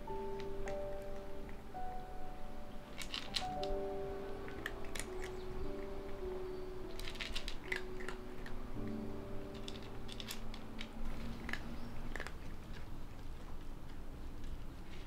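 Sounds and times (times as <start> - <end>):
soft background music: 0.0 - 15.0
cat crunching dry kibble: 2.9 - 3.8, 4.5 - 5.9, 6.9 - 15.0.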